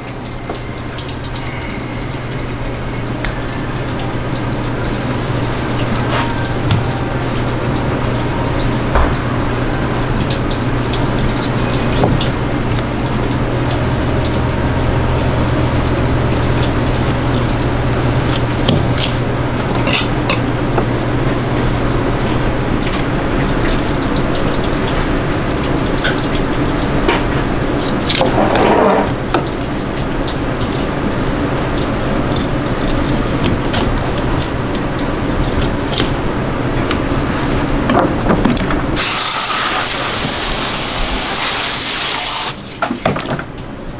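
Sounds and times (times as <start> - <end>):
low hum: 0.0 - 28.2
running water: 0.0 - 43.9.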